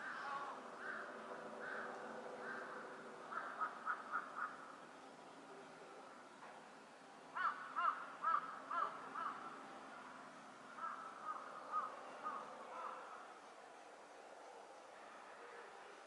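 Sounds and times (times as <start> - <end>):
crow cawing: 0.0 - 4.7, 7.4 - 9.4, 10.8 - 13.1.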